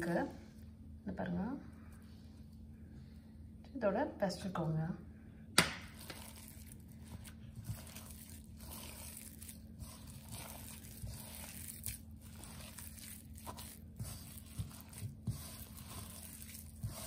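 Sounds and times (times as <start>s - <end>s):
hand kneading paste squishing: 5.6s - 17.0s.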